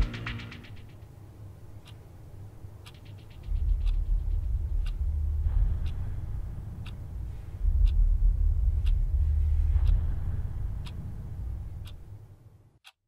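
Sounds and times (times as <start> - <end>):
clock ticking: 0.0 - 13.0
deep loud rumble: 3.5 - 12.3.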